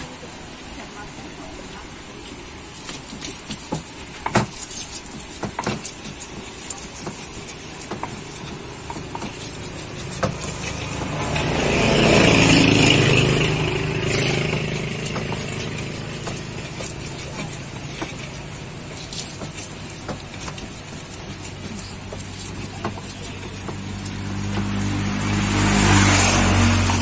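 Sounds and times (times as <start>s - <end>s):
stone pestle pounding in mortar: 3.0s - 27.0s
motor vehicle passing: 5.9s - 27.0s.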